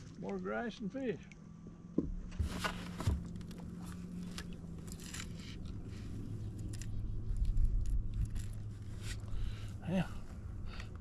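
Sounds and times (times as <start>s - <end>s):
handling scrapes and rustling: 2.2s - 9.4s.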